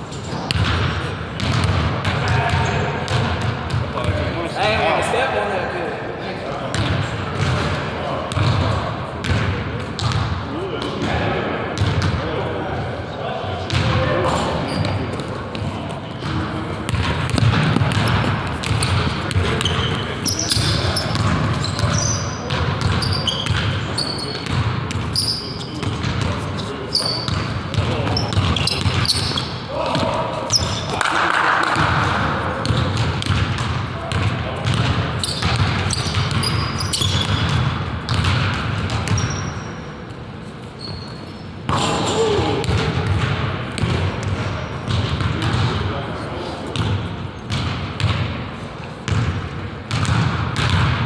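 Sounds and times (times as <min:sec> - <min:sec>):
sneaker squeaks: 0:00.0 - 0:04.2, 0:13.7 - 0:31.1, 0:34.1 - 0:43.2
basketball and feet thudding: 0:13.7 - 0:25.2
basketball dribbling on hardwood: 0:16.2 - 0:20.0, 0:49.9 - 0:51.0.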